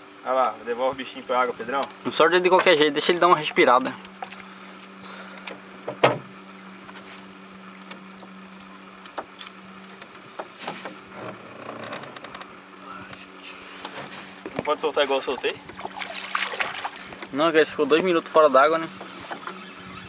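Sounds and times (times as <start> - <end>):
boat motor humming: 0.0 - 20.0.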